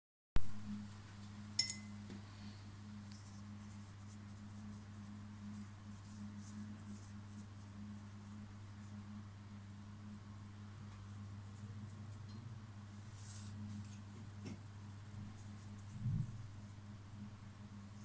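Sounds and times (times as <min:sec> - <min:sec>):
low electrical hum: 0:00.4 - 0:18.0
short bright clink: 0:01.6 - 0:02.0
paintbrush scratching on paper: 0:03.2 - 0:09.2, 0:11.0 - 0:12.2, 0:12.9 - 0:16.8.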